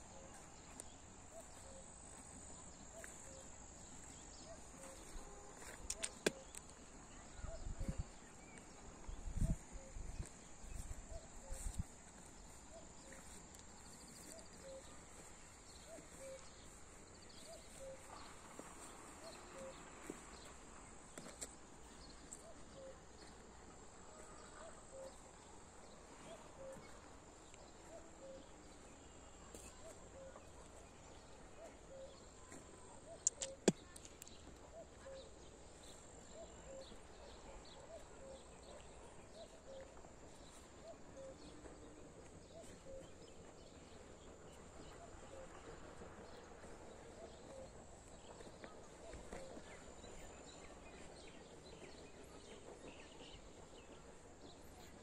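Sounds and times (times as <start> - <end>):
sharp clicks: 33.2 - 34.4.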